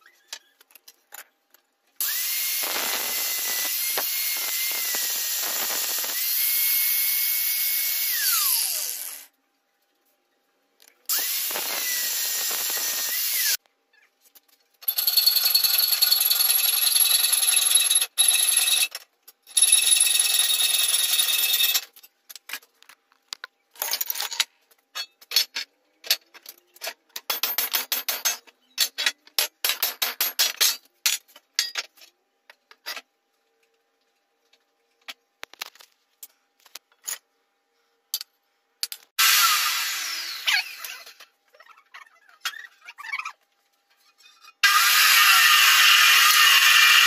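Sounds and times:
angle grinder running: 2.0s - 9.3s, 11.1s - 13.6s, 44.6s - 47.0s.

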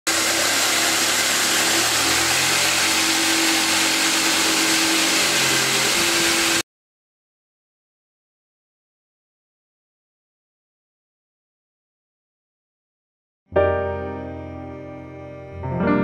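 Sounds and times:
jigsaw cutting plywood: 0.0s - 6.6s.

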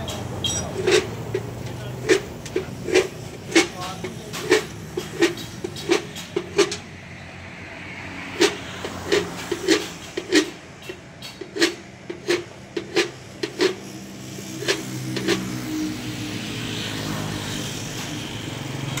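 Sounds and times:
hoist control clacking: 0.0s - 6.9s, 8.4s - 15.8s
hoist motor humming: 0.0s - 7.0s.

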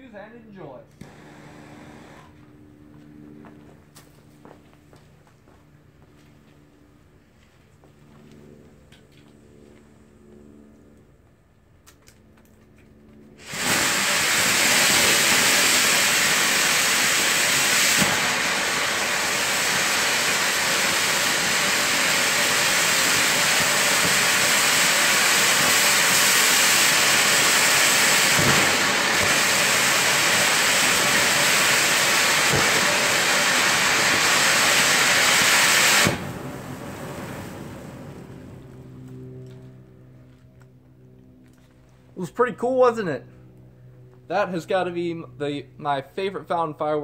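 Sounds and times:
firework fountain hissing: 1.0s - 2.3s, 13.4s - 38.3s
faint firework pops: 28.3s - 29.4s.

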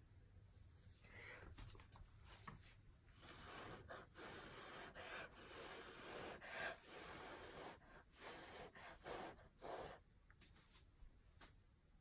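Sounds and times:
person blowing breathy puffs: 3.2s - 10.0s
quick breaths: 3.2s - 10.1s.

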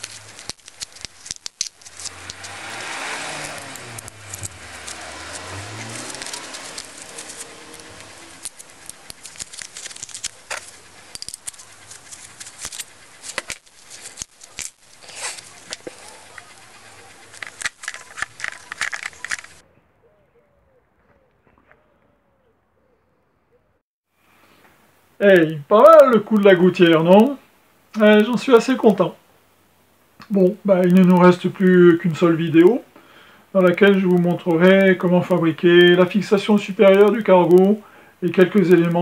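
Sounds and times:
metal fasteners clicking and clinking: 3.5s - 19.6s.

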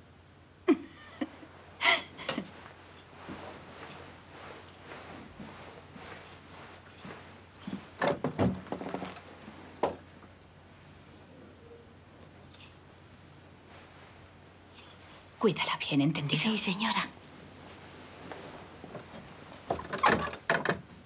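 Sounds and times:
people moving about: 2.1s - 10.1s.

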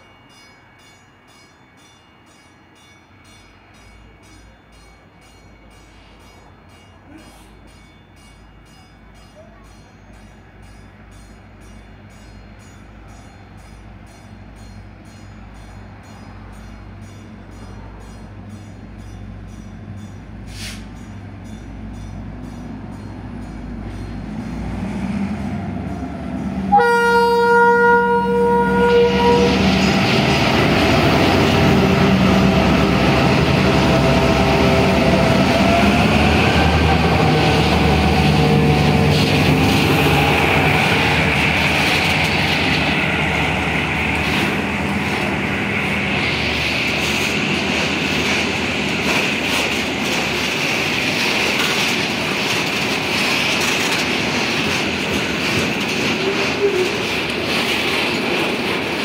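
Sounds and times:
diesel locomotive engine: 0.0s - 59.0s
train rail noise: 0.0s - 59.0s
train horn chord: 26.6s - 29.9s.

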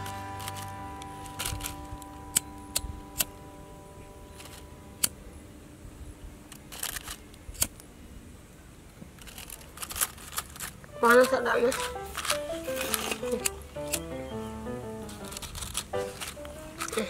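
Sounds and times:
faint background music: 0.0s - 8.9s, 10.8s - 17.0s
plastic crinkling in hands: 9.2s - 14.0s, 15.0s - 17.0s
sharp clicks: 9.2s - 14.4s.

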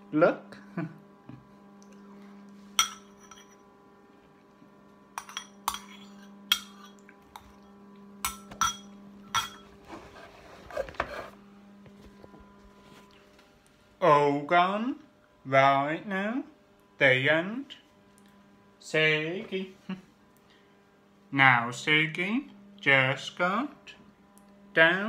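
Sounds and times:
steady low hum: 0.0s - 25.0s
metal spoon clinking ceramic bowl: 2.8s - 3.6s, 5.2s - 7.5s, 8.2s - 9.7s.

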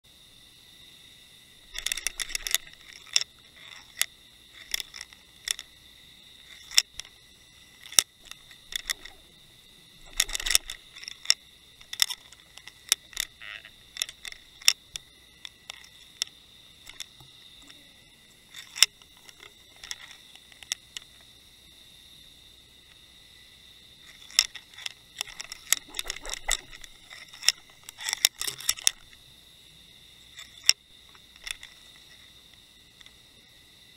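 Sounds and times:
faint high whine: 0.0s - 33.9s
underwater clicks and knocks: 1.7s - 5.7s, 7.8s - 9.4s, 10.0s - 17.8s, 24.0s - 29.2s.

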